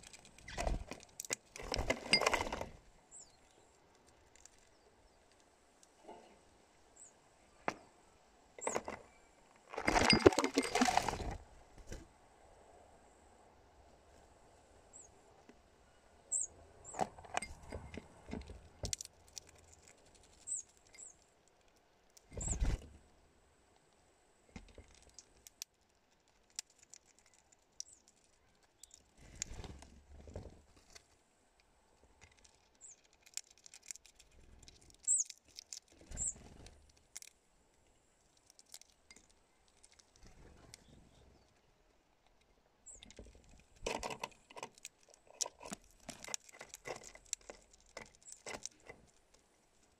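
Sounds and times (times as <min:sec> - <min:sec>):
birds tapping and scratching on tray: 0:00.0 - 0:02.8, 0:08.6 - 0:12.0, 0:42.9 - 0:49.4
high bird chirps: 0:16.3 - 0:16.5, 0:35.1 - 0:35.3.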